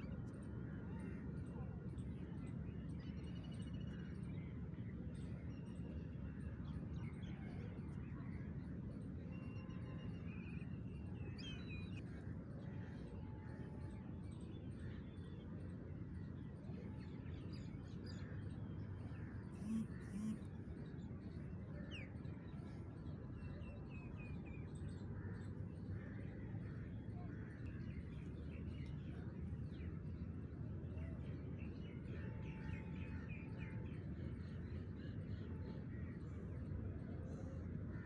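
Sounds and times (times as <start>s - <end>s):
low outdoor background rumble: 0.0s - 38.0s.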